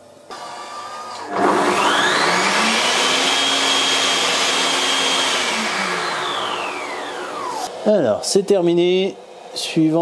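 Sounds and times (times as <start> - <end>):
kitchen robot grinding sugar: 1.0 - 7.7.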